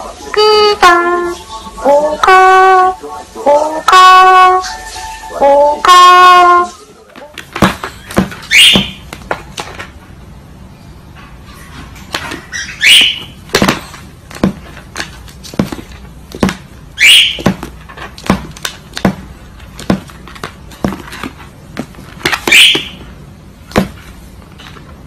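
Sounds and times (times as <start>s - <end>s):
cockatoo screeching: 8.4s - 9.0s, 12.4s - 13.4s, 17.0s - 17.4s, 22.5s - 23.0s.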